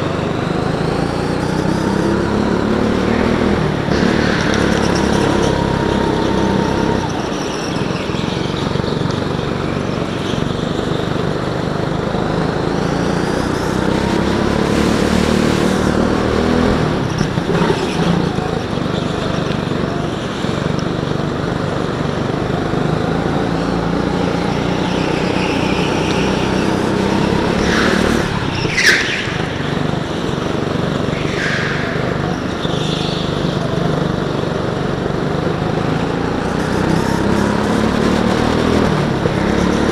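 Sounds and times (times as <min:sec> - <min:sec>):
go-kart engine revving: 0:00.0 - 0:39.9
tyre squeals: 0:01.2 - 0:11.1, 0:23.3 - 0:34.4.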